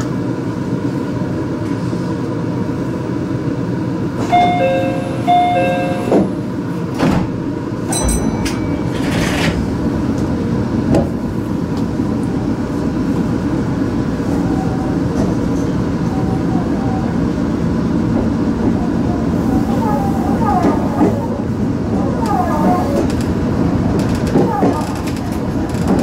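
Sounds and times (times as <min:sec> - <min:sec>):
train pulling away: 0:03.9 - 0:26.0
sliding doors closing with knocks: 0:04.2 - 0:11.2, 0:20.4 - 0:26.0
short signal tone: 0:04.3 - 0:06.2
two-note chime: 0:04.3 - 0:06.2, 0:07.9 - 0:09.0.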